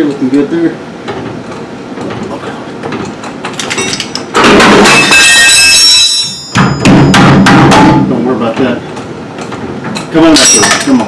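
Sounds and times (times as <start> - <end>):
metal parts being handled: 2.9 - 4.3, 9.4 - 11.0
loud harsh hiss with ringing tones: 4.8 - 8.5.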